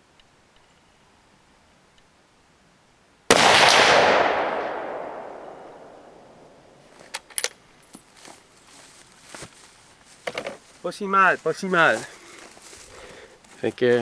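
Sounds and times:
rifle shot with echo: 3.3s - 6.7s.

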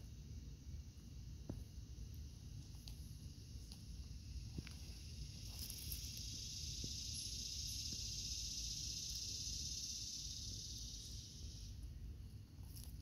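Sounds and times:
high-pitched insect drone: 3.1s - 11.9s.

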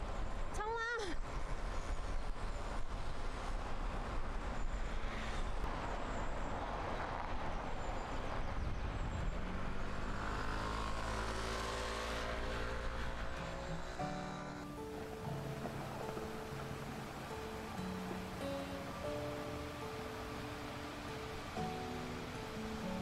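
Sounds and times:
wind and road noise: 0.0s - 23.0s
vehicle engine running: 9.1s - 23.0s
music: 14.0s - 23.0s.

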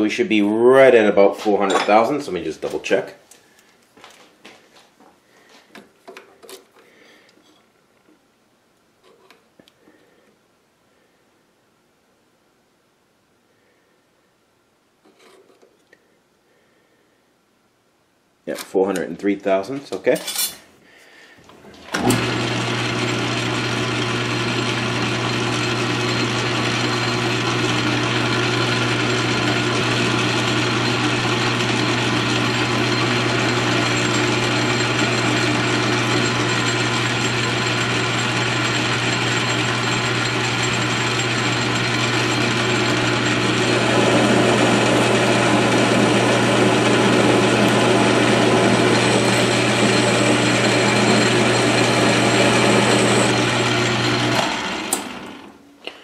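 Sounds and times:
metal lathe running: 22.0s - 55.5s.

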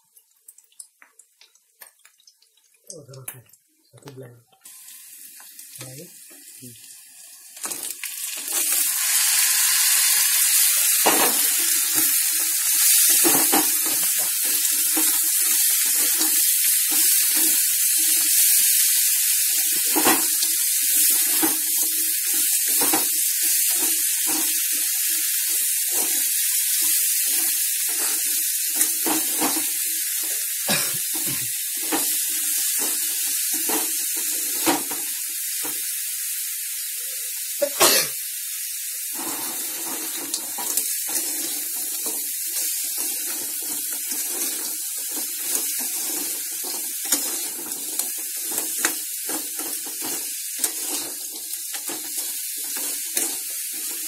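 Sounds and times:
food sizzling in hot oil: 0.0s - 3.7s, 4.6s - 54.0s
metal spoon scraping a pan: 9.6s - 30.3s, 39.2s - 54.0s.

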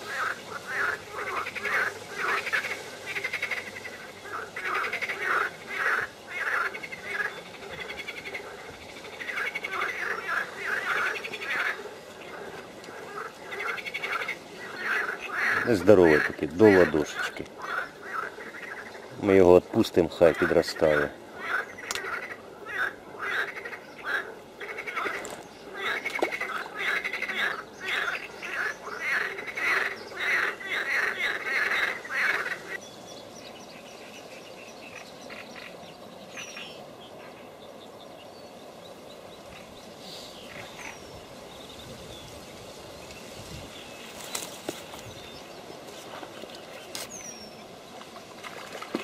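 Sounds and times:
rapid repeated animal calls: 0.0s - 19.1s, 20.4s - 32.8s
outdoor hiss: 0.0s - 22.8s, 29.1s - 49.0s.

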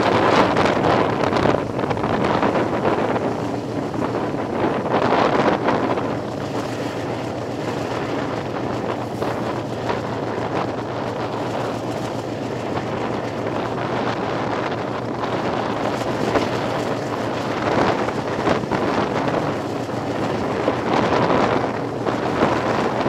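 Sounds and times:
train running on rails: 0.0s - 23.0s
wind buffeting microphone: 0.0s - 23.0s.

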